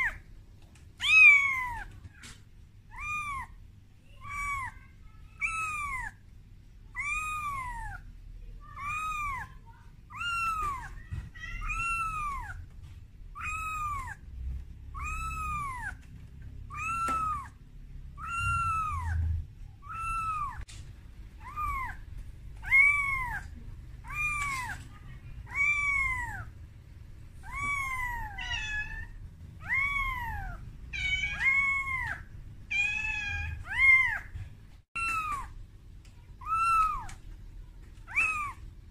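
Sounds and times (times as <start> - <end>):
kitten meowing: 1.0 - 2.0, 2.9 - 3.6, 4.2 - 6.2, 6.9 - 8.0, 8.8 - 12.7, 13.3 - 14.2, 14.9 - 16.1, 16.7 - 20.6, 21.4 - 26.5, 27.4 - 34.4, 35.0 - 35.6, 36.4 - 37.2, 38.1 - 38.6.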